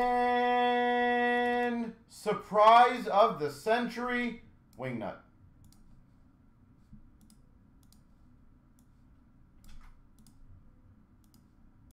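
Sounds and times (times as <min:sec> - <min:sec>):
computer mouse clicks: 0:05.6 - 0:06.0, 0:06.9 - 0:09.0, 0:09.6 - 0:10.5, 0:11.2 - 0:11.6.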